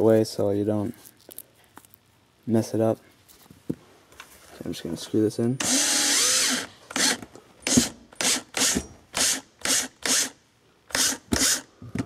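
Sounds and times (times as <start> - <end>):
cordless drill driving a screw: 5.6 - 11.7.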